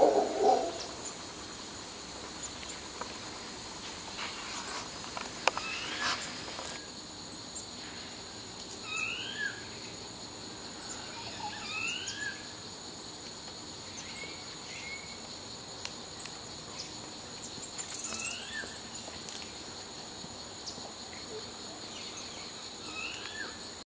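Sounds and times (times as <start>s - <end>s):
high-pitched insect drone: 4.9s - 13.1s, 13.7s - 23.8s.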